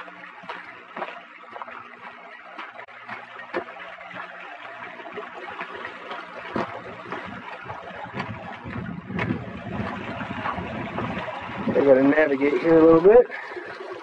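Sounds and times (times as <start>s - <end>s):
footsteps on rocky trail: 0.0s - 4.4s, 5.6s - 11.2s
small stream trickling: 0.0s - 14.0s.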